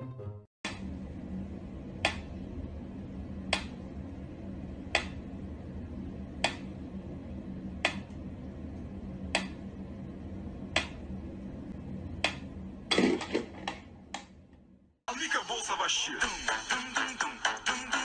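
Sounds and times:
steady low hum: 0:00.7 - 0:15.0.

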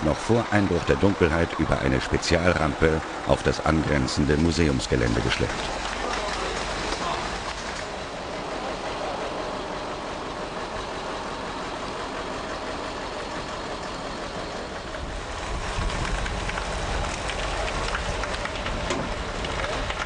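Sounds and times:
large tyres rumbling on pavement: 0:00.0 - 0:20.0
tow tractor engines running: 0:00.0 - 0:20.0
deep rumble: 0:14.5 - 0:20.0.

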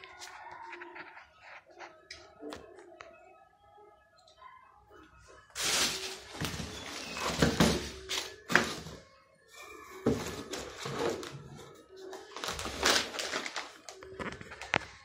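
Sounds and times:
faint music: 0:00.0 - 0:15.0
plastic wrapping crinkling: 0:05.6 - 0:09.0, 0:12.1 - 0:15.0
cardboard box rustling: 0:12.4 - 0:13.7.

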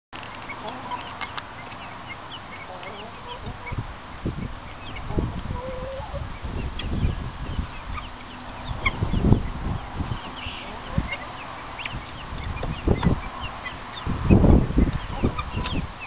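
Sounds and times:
hen clucking: 0:00.4 - 0:16.0
guinea fowl honk-like calls: 0:00.5 - 0:16.0.

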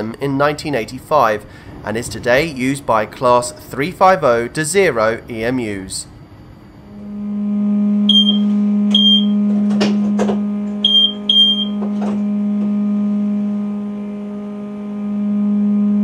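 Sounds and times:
electric train hum: 0:00.0 - 0:16.0
short high electronic beeps: 0:08.1 - 0:09.4, 0:10.8 - 0:11.8.

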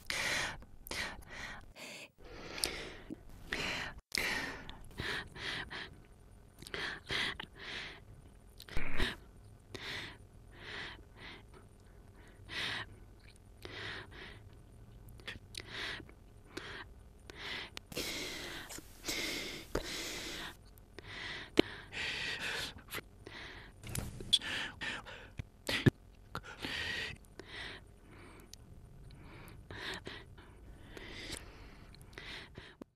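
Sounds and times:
person gasping and exhaling: 0:17.4 - 0:22.5.

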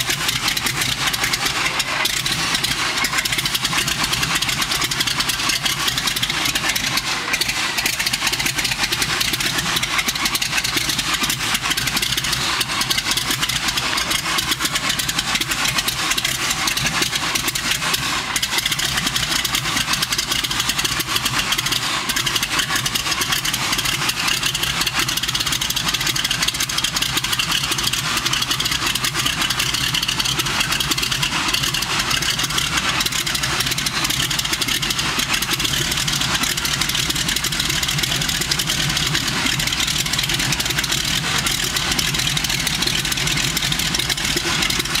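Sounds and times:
radial aircraft engine running: 0:00.0 - 0:45.0.

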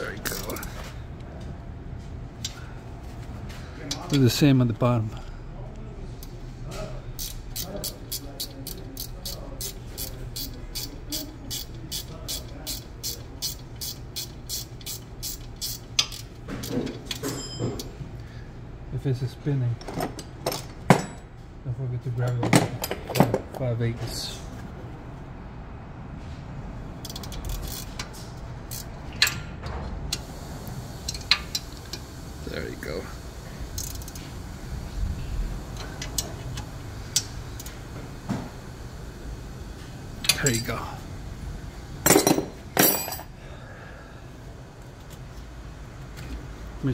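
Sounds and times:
hand tools clicking on metal: 0:27.0 - 0:28.1.

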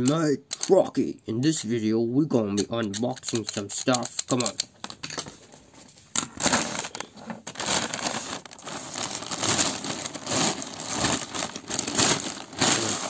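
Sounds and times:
plastic mailer bag crinkling: 0:06.2 - 0:13.0.

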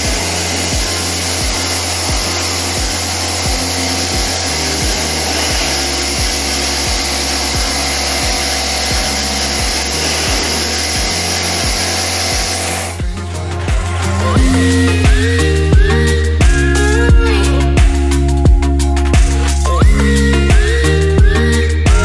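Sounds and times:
spray gun hissing: 0:00.0 - 0:13.0
background music with beat: 0:00.0 - 0:22.0.

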